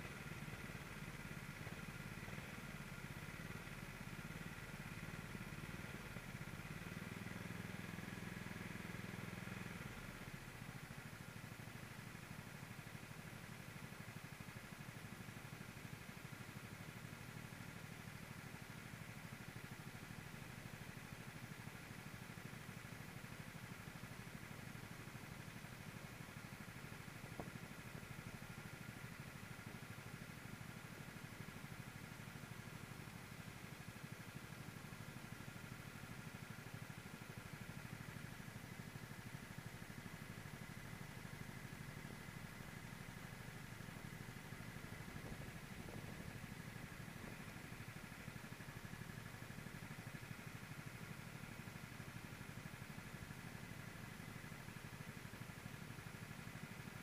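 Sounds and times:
kart engine running: 0:39.1 - 0:51.1.

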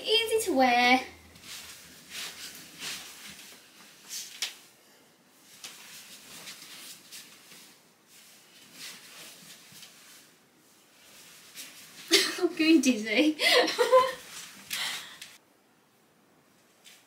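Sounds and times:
clothes rustling: 0:00.1 - 0:15.4
soft footsteps: 0:05.4 - 0:12.2.

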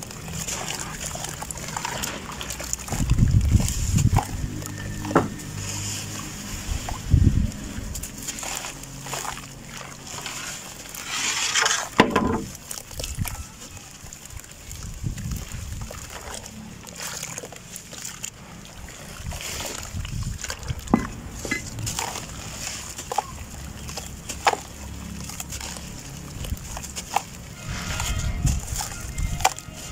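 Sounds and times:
low steady drone: 0:00.0 - 0:11.0
dirt crumbling into water: 0:00.0 - 0:13.4, 0:14.0 - 0:29.9
hands squelching wet mud: 0:00.0 - 0:29.9
water splashing: 0:00.0 - 0:29.9.

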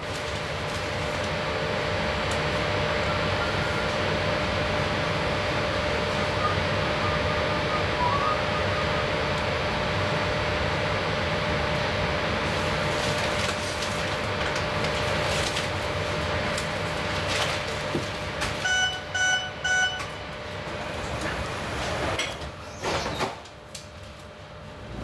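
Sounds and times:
train equipment humming: 0:00.0 - 0:22.7
short electronic beeps: 0:18.6 - 0:20.1.

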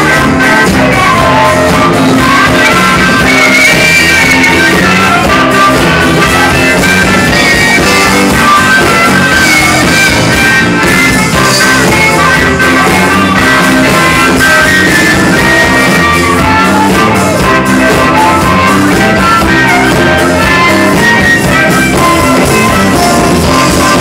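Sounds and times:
blues rock band playing: 0:00.0 - 0:24.0.

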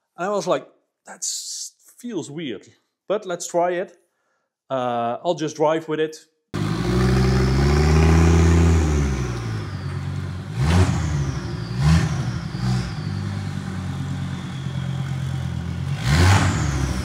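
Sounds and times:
race car engine revving: 0:06.6 - 0:17.0.

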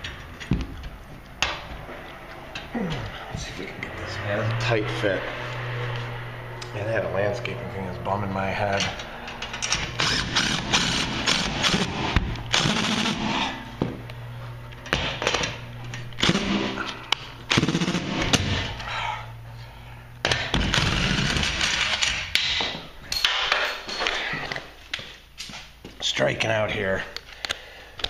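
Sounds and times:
impact driver hammering: 0:09.6 - 0:14.0, 0:16.2 - 0:18.7.

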